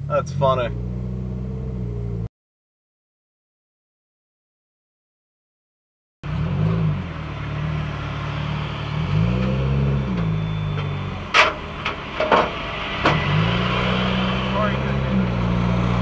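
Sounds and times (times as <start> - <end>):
car engine accelerating: 0.0 - 2.3, 6.2 - 16.0.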